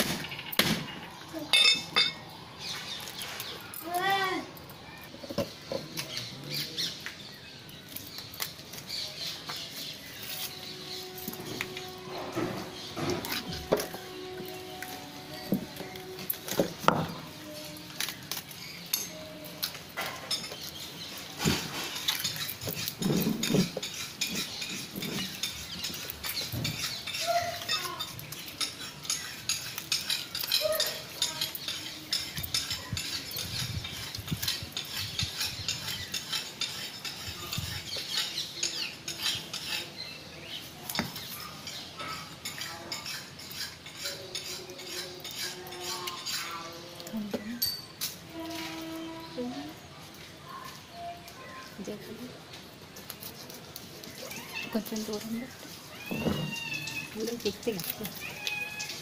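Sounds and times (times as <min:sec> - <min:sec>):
metal clinking: 0:01.5 - 0:02.2
knife scraping fish: 0:07.9 - 0:12.0, 0:17.9 - 0:40.2, 0:41.1 - 0:47.0, 0:52.9 - 0:59.0.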